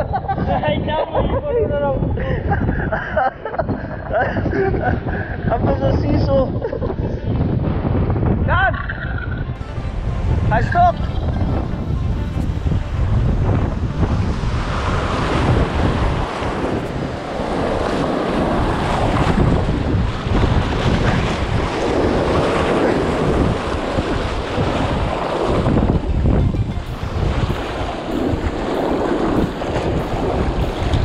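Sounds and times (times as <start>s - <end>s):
wind rumble on microphone: 0.0s - 31.0s
surf washing and breaking: 9.6s - 31.0s.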